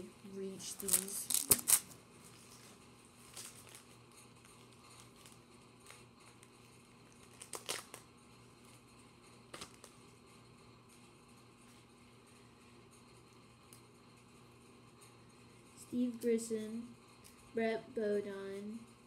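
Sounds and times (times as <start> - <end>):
faint steady hum: 0.0 - 19.0
trading cards rustling and tapping: 0.6 - 8.0, 9.5 - 10.1.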